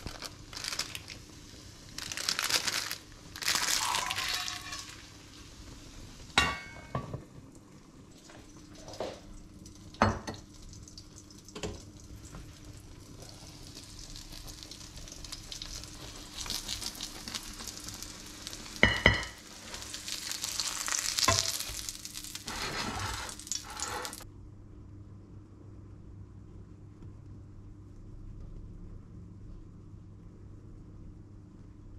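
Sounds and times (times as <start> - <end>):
omelette sizzling in a frying pan: 0.0 - 24.2
metal pan lid clinking: 6.4 - 7.1.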